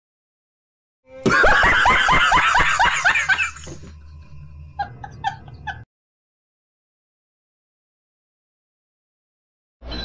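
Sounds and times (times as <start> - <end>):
man laughing hard: 1.2 - 3.9, 4.8 - 5.9.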